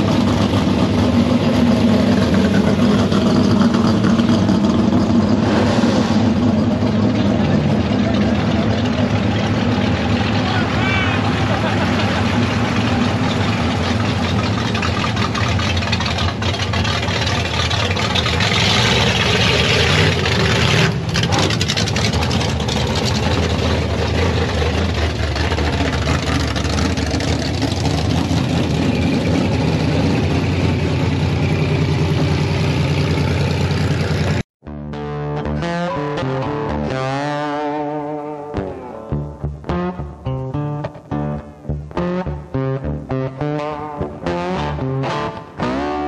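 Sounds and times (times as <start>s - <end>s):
vehicle engine running: 0.0s - 34.5s.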